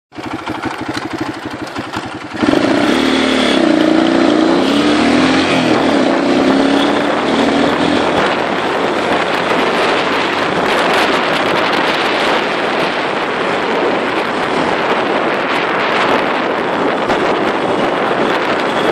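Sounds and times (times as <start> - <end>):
steady rushing noise: 0.1 - 18.9
dirt bike engine revving: 0.2 - 18.9.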